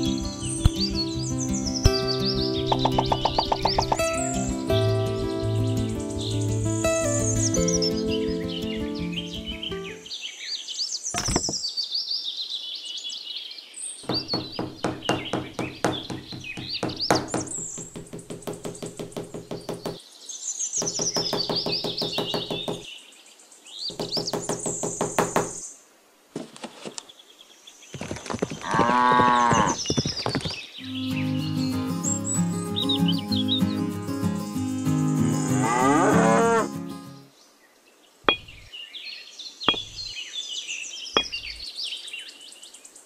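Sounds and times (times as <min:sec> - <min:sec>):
birds chirping: 0:00.0 - 0:25.8, 0:27.0 - 0:43.0
hammer tapping wooden post: 0:14.1 - 0:20.0, 0:20.8 - 0:22.9, 0:23.9 - 0:25.6, 0:38.3 - 0:38.7, 0:39.7 - 0:40.1, 0:41.2 - 0:41.6
long farm animal call: 0:28.6 - 0:29.8, 0:35.2 - 0:36.8.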